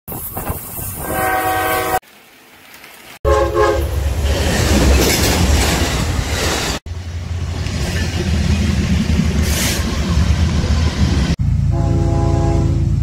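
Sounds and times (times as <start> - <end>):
locomotive horn blasts: 1.0 - 2.0, 3.2 - 3.9, 11.7 - 13.0
locomotive passing rumble: 3.3 - 13.0.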